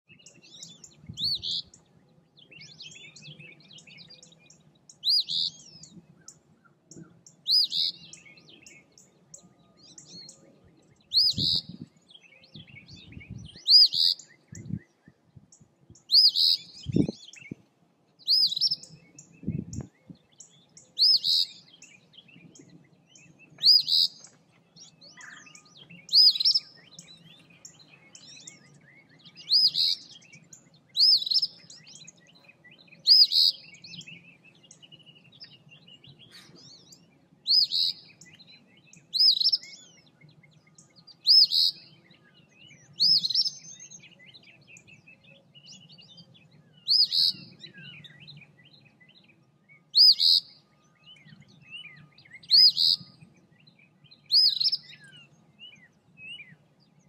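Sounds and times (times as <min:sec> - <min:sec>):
faint bird sounds: 0:00.0 - 0:57.0
bird singing two-part song: 0:11.0 - 0:15.2, 0:16.0 - 0:17.6, 0:18.2 - 0:56.6.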